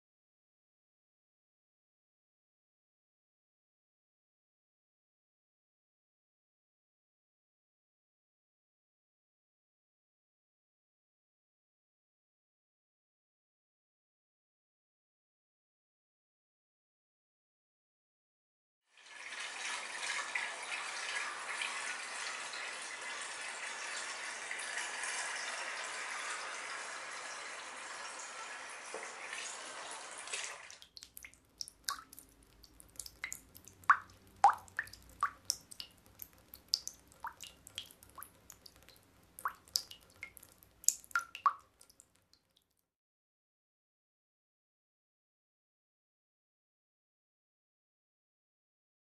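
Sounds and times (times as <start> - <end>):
water drops plinking: 30.9 - 41.7.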